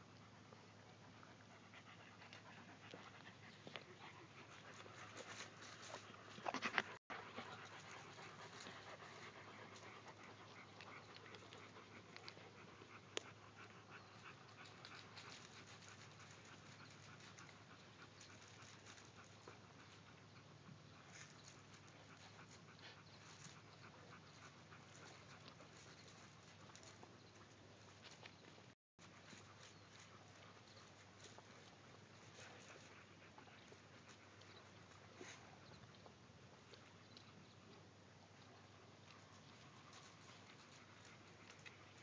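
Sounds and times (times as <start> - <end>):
dog panting: 0.1 - 42.0.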